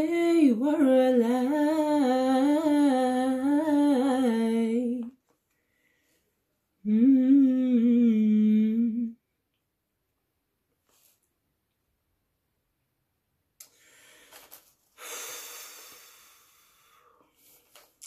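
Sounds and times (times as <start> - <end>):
woman singing unaccompanied: 0.0 - 5.2, 6.8 - 9.2
woman humming: 6.8 - 9.2.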